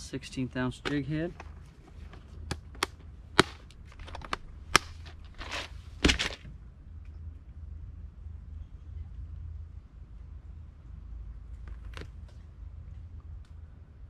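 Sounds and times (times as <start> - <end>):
plastic rustling: 0.9 - 6.5.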